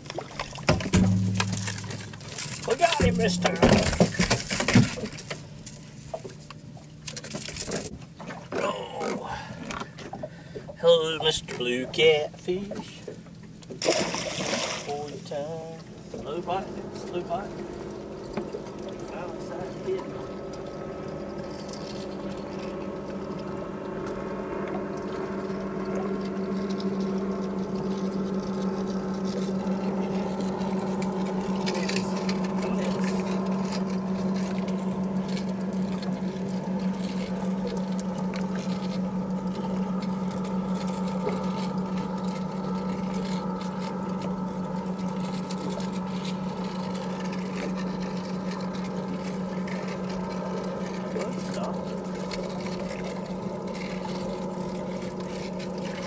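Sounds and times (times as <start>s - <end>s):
steady low hum: 0.0s - 56.0s
fishing reel whirring and ticking: 16.5s - 56.0s.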